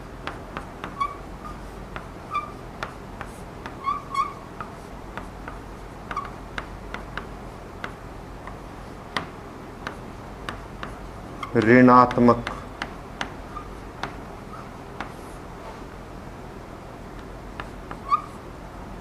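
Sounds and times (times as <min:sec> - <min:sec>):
chalk tapping and scratching: 0:00.1 - 0:15.4, 0:17.2 - 0:18.4
chalk squeaks: 0:00.6 - 0:04.8, 0:06.0 - 0:06.4, 0:10.8 - 0:11.7, 0:13.5 - 0:13.8, 0:14.5 - 0:14.8, 0:17.6 - 0:18.4.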